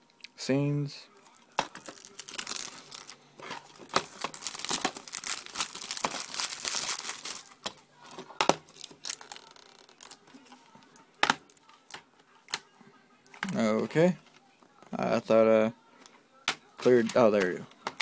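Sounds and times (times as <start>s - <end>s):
plastic wrap crinkling: 1.3s - 12.6s.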